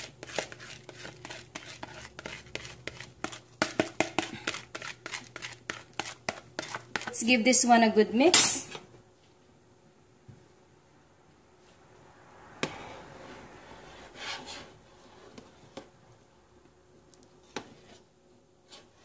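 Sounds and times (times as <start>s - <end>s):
spatula swishing through liquid: 0.0s - 7.1s.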